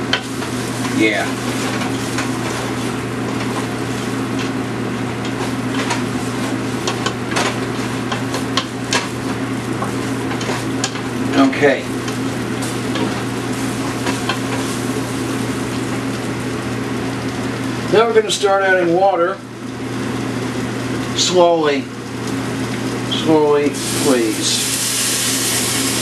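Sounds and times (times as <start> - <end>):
roux sizzling in a pan: 0.0 - 26.0
steady low hum: 0.0 - 26.0
utensil scraping a pan: 0.2 - 4.6, 5.2 - 11.1.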